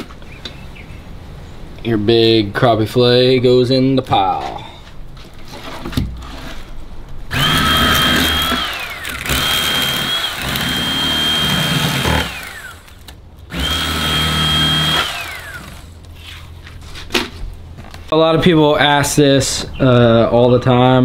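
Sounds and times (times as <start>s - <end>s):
electric knife motor whine: 7.3s - 16.0s.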